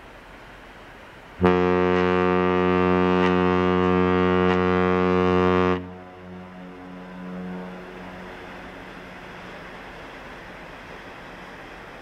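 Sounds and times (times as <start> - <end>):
ship's horn long deep blast: 1.4 - 10.0.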